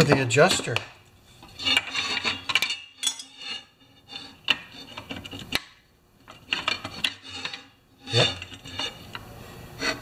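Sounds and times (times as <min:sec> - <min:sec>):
metal parts clinking and scraping: 0:01.4 - 0:04.3.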